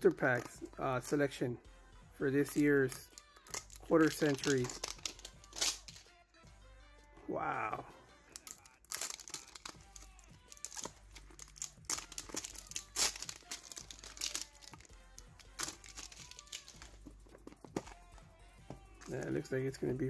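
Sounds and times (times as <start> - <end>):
plastic foil wrappers crinkling: 3.1 - 6.0, 8.3 - 18.0
metal tins being handled: 3.4 - 6.0, 8.4 - 18.0.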